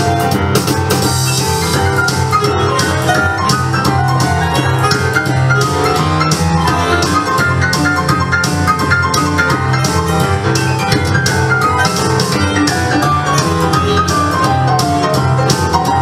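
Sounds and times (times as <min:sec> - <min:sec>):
fast keyboard melody: 0:00.0 - 0:16.0
steady bass line: 0:00.0 - 0:16.0
drum beat: 0:00.2 - 0:16.0.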